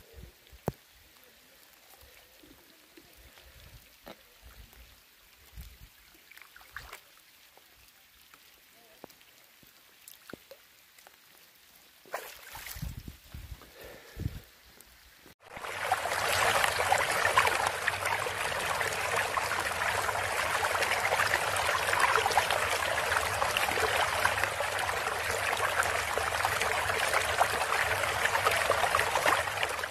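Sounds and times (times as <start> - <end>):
steady rushing water-like noise: 15.4 - 29.9.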